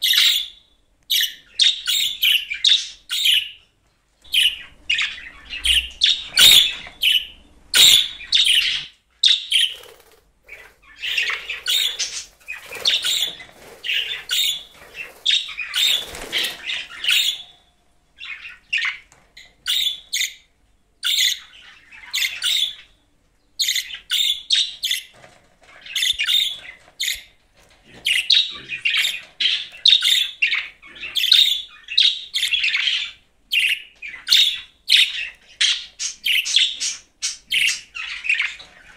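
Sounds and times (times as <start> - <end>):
budgerigar chattering: 4.3 - 9.8.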